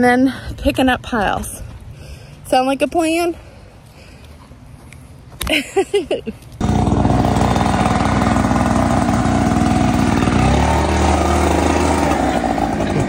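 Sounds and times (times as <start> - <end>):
leaf blower engine idling: 6.6 - 13.0.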